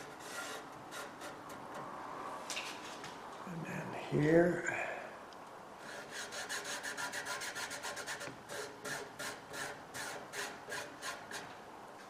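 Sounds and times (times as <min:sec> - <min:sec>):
fingertip rasping on cloth: 0:05.9 - 0:11.4.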